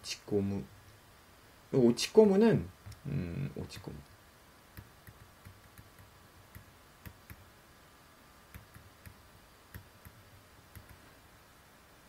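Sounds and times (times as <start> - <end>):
stylus tapping on tablet: 4.7 - 7.5, 8.5 - 11.0.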